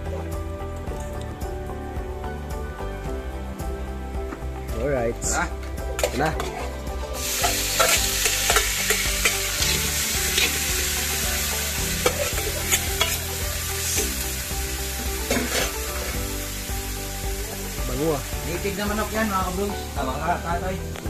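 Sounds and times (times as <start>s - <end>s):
food sizzling in hot oil: 6.0s - 21.0s.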